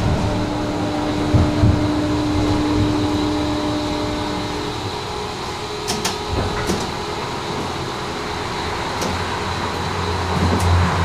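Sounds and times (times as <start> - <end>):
low rumble: 0.0 - 7.4
tram hum: 0.0 - 11.0
sharp clicks and knocks: 5.8 - 7.0.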